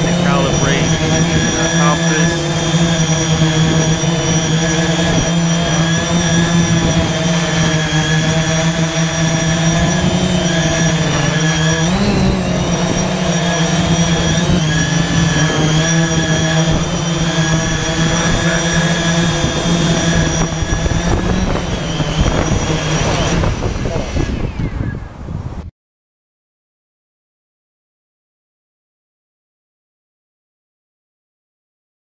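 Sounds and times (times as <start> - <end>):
drone propellers humming: 0.0 - 25.3.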